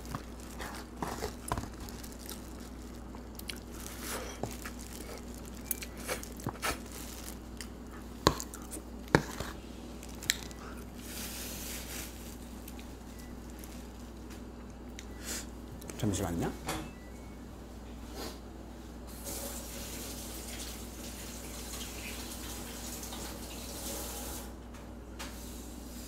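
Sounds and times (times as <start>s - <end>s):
person chewing crunchy food: 0.0s - 14.0s.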